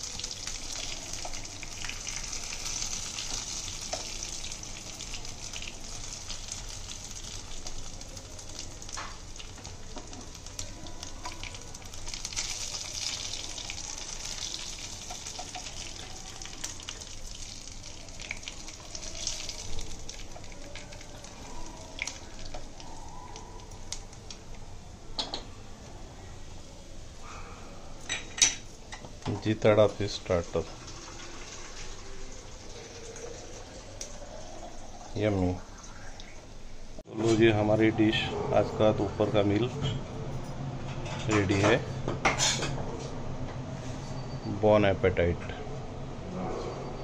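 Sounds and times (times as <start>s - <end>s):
fish sizzling in oil: 0.0s - 24.2s, 30.3s - 36.9s.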